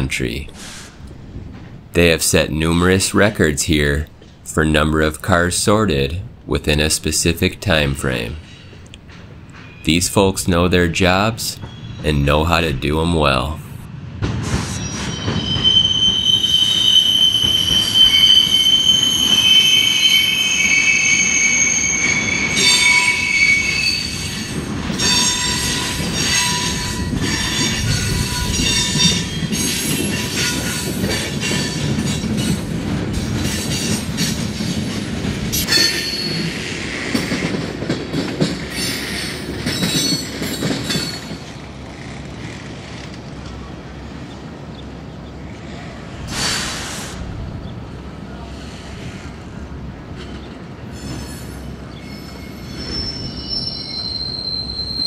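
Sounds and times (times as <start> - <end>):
train wheels clanking and knocking: 8.4 - 9.8, 24.1 - 43.3
train wheels squealing: 9.5 - 9.9, 11.6 - 12.1, 14.4 - 32.6, 35.6 - 37.4, 38.7 - 41.4, 50.2 - 55.0.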